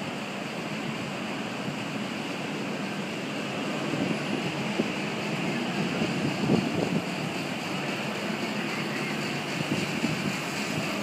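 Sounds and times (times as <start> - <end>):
low drone: 0.0 - 11.0
ocean surf roaring: 0.0 - 11.0.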